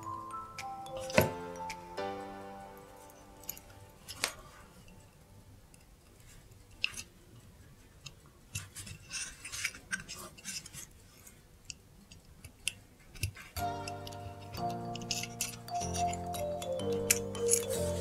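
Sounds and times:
small tools clicking and tapping: 0.0 - 1.8, 11.6 - 18.0.

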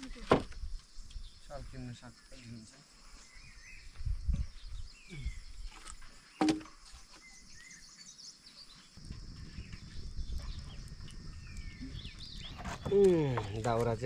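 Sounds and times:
small birds chirping: 0.0 - 14.0.

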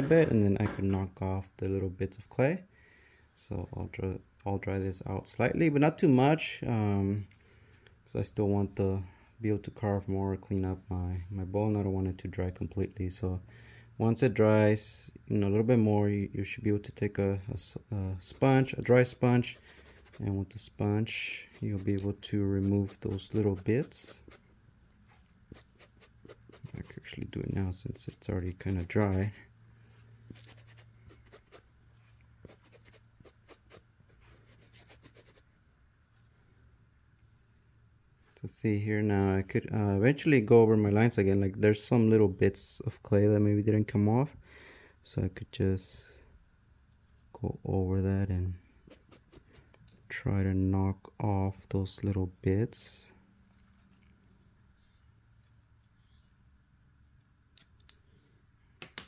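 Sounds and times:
faint steady hum: 0.0 - 59.0
sponge rubbing on clay: 18.3 - 24.5, 25.1 - 27.2, 27.9 - 29.4, 30.3 - 35.5, 48.8 - 49.7.

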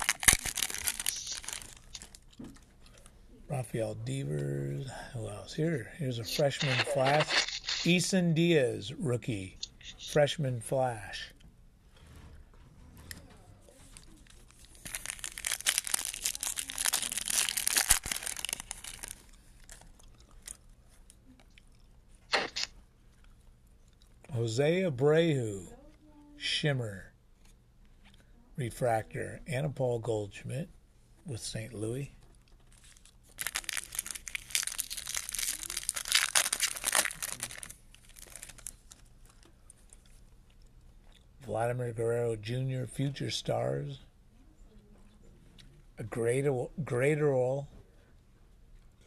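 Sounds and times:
foil wrapper crinkling and tearing: 0.0 - 2.4, 13.9 - 20.6, 32.6 - 40.2.

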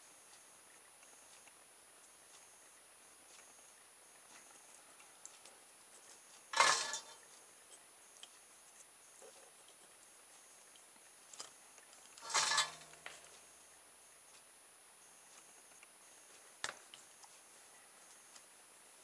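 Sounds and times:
faint ticks: 0.1 - 13.6
small objects clattering: 12.2 - 13.2.

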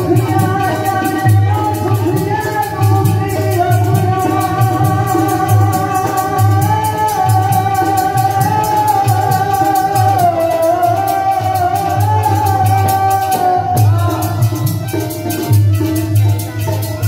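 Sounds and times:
drum beat: 0.0 - 17.0
quick percussion rhythm: 0.0 - 17.0.

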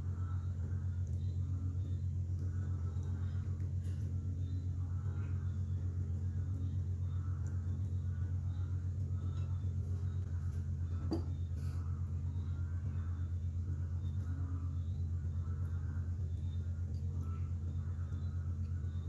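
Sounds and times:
pulsing low hum: 0.0 - 19.0.

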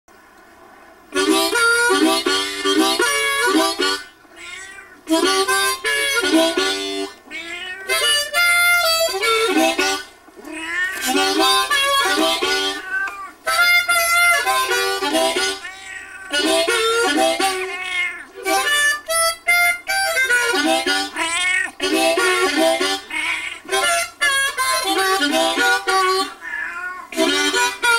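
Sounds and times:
bluesy harmonica: 1.1 - 4.2, 5.0 - 10.2, 11.0 - 27.9
cat meowing: 4.3 - 5.1, 7.3 - 8.4, 10.4 - 11.4, 12.6 - 13.5, 15.5 - 16.4, 17.4 - 18.6, 21.1 - 21.8, 23.0 - 23.8, 26.2 - 27.2.

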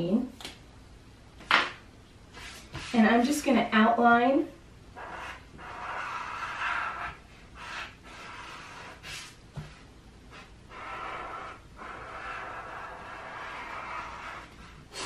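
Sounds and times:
marker scratching on paper: 2.3 - 3.2, 5.0 - 14.9.

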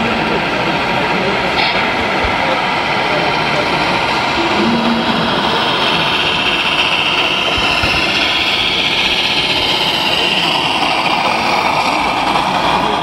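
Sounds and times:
simulated diesel engine running: 0.0 - 13.0
low whine: 1.6 - 10.7.

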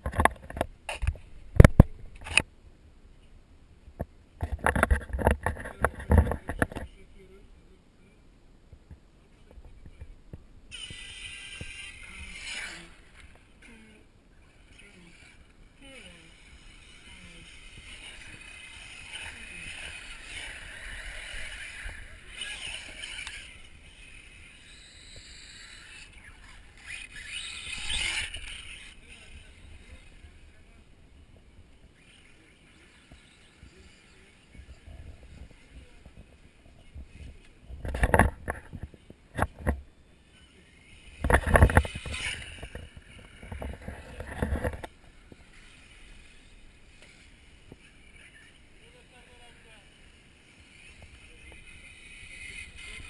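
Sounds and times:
microphone handling noise: 0.0 - 2.4, 3.9 - 6.9
low steady hiss: 0.0 - 4.7, 5.3 - 53.0
rc buggy engine revving: 10.7 - 53.0.

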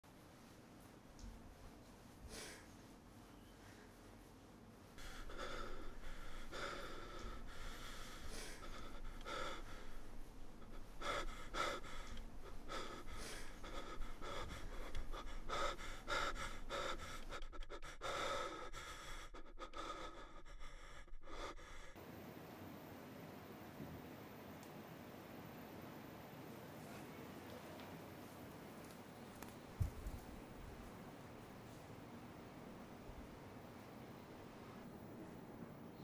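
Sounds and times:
person panting: 2.2 - 2.9, 4.9 - 22.0.

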